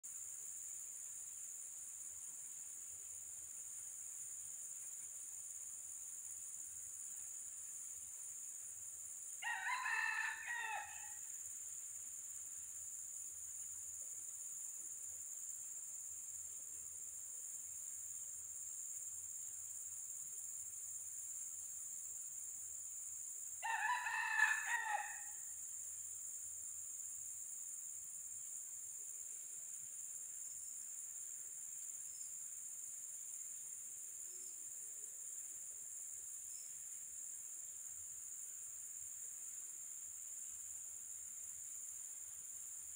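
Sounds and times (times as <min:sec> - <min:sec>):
high insect drone: 0:00.0 - 0:42.9
rooster crowing: 0:09.4 - 0:11.3, 0:23.6 - 0:25.4.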